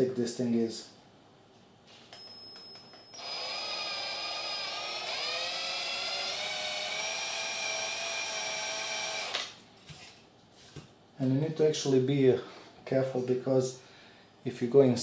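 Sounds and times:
cordless drill whine: 2.8s - 9.6s.

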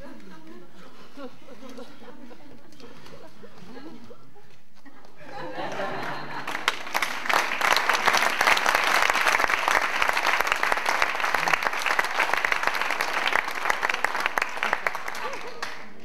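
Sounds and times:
audience applauding: 5.5s - 16.0s.

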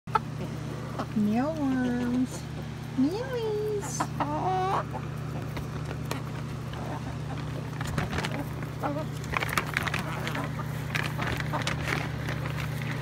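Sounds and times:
chicken calling: 0.1s - 11.8s
steady low hum: 0.1s - 13.0s
chickens pecking clicks: 3.8s - 13.0s.

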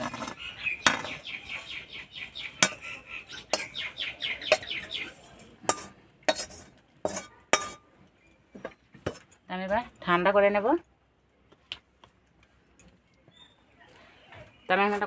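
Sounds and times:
metal spatula scraping: 0.0s - 7.9s, 8.6s - 9.4s.

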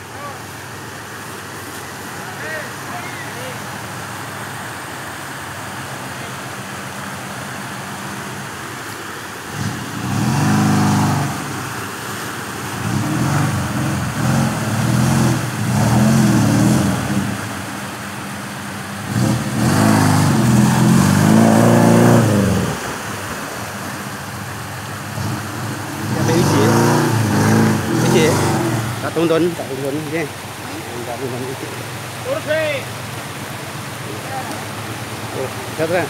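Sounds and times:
off-road vehicle engine revving: 9.4s - 36.0s.

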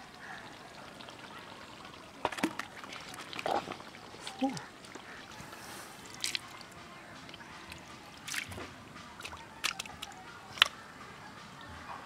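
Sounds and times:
hand squelching in muddy water: 6.0s - 6.6s, 7.7s - 10.7s.

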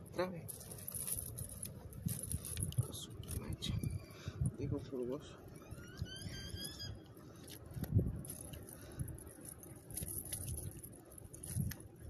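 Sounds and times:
net rustling and clicking: 7.4s - 11.9s.

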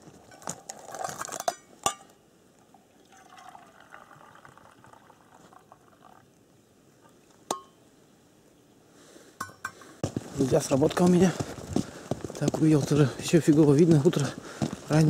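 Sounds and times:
faint water trickling: 2.3s - 9.3s.

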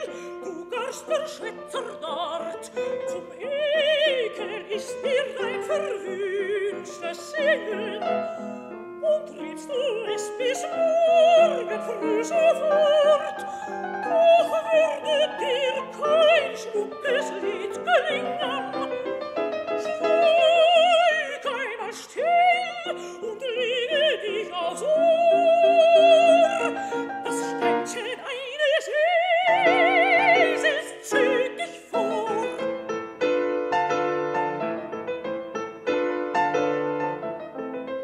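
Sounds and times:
soprano singing with vibrato: 0.0s - 33.4s
piano accompaniment: 0.0s - 38.0s.

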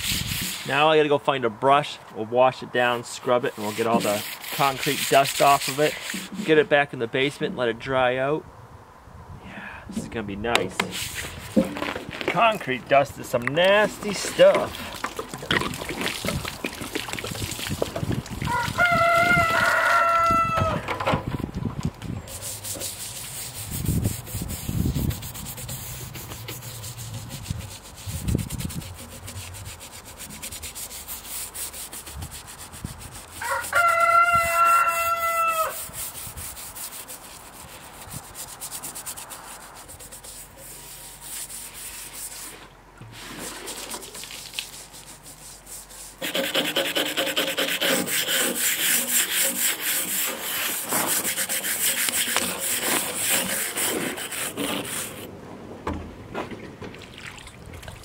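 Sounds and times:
scrub brush scrubbing concrete: 0.0s - 0.9s, 3.1s - 6.8s, 10.0s - 20.2s, 22.2s - 55.3s
rooster crowing: 18.5s - 20.9s, 33.4s - 35.8s.

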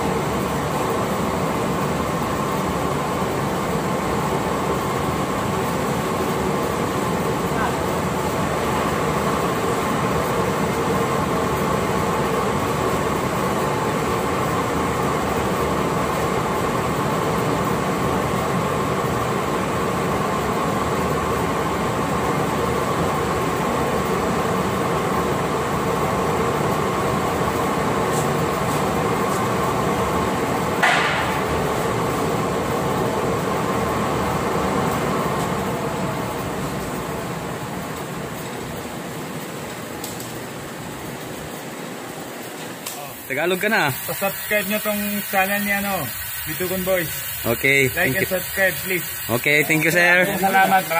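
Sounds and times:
machinery humming: 0.0s - 50.9s
sharp knock with ring: 30.8s - 31.4s.

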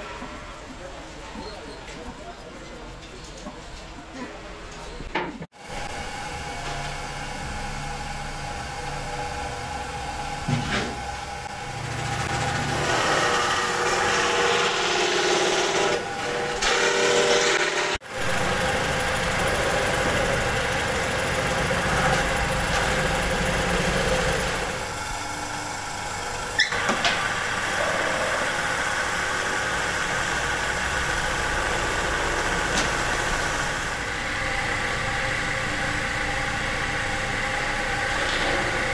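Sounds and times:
wood lathe running: 11.4s - 38.9s.

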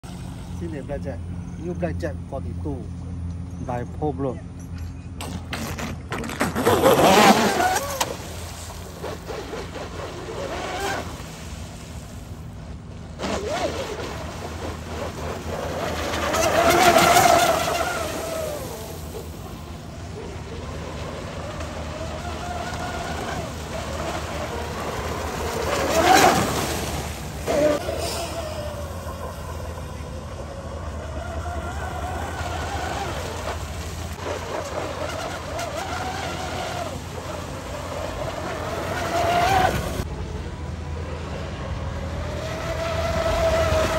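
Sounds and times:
model boat motor whine: 0.0s - 43.9s
hull spray: 5.2s - 40.1s.

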